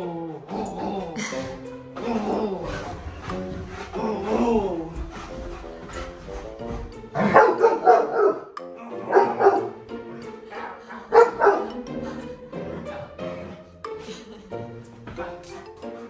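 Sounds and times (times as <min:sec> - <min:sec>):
dog barking: 0:07.2 - 0:09.8, 0:10.6 - 0:11.8.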